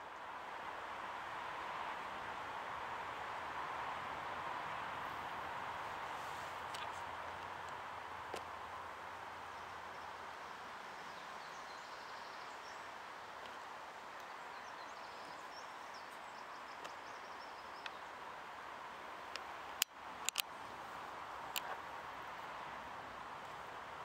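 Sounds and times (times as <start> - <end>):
outdoor background hiss: 0.0 - 24.0
sharp clicks: 19.4 - 20.5.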